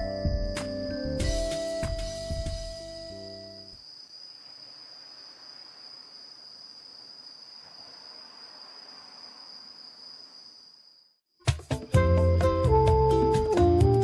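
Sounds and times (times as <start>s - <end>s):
faint hiss: 3.7s - 10.9s.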